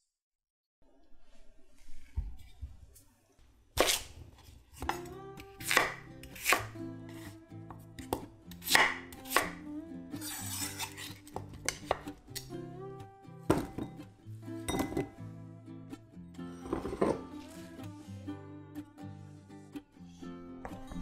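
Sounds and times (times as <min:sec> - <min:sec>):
soft background music: 0:04.8 - 0:21.0
knife chopping on wooden board: 0:05.6 - 0:07.3, 0:08.0 - 0:09.6, 0:10.2 - 0:12.0.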